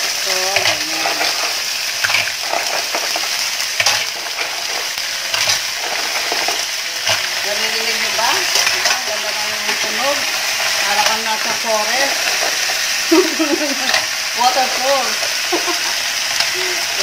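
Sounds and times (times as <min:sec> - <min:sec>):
mussels sizzling in hot oil: 0:00.0 - 0:17.0.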